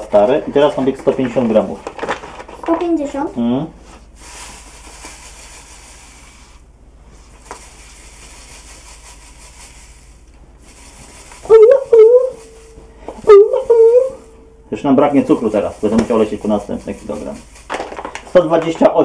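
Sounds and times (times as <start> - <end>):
sugar pouring into a bowl: 4.2 - 6.7, 7.4 - 12.9, 15.0 - 18.7.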